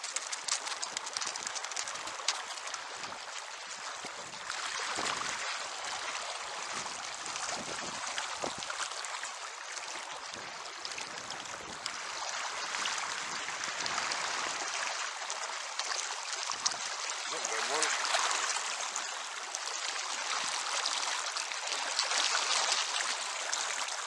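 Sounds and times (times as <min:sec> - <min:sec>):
fish splashing at the surface: 0:00.0 - 0:24.0
river current rushing: 0:12.0 - 0:24.0.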